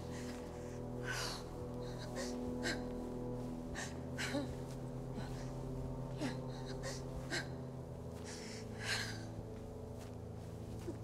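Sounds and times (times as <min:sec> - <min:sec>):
low sustained drone: 0:00.0 - 0:11.0.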